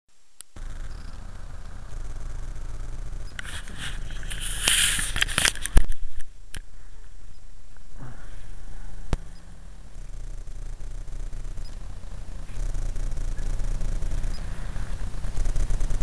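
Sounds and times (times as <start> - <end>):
steady low rumble: 0.2 - 16.0
rustling handling noise: 3.4 - 6.4.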